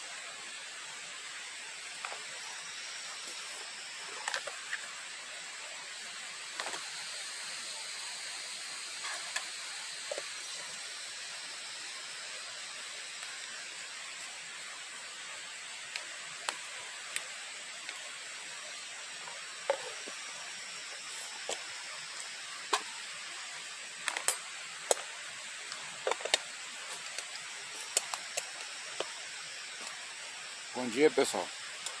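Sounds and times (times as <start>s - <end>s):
steady hiss: 0.0s - 32.0s
sharp clicks and cracks: 24.0s - 25.1s, 25.7s - 29.2s.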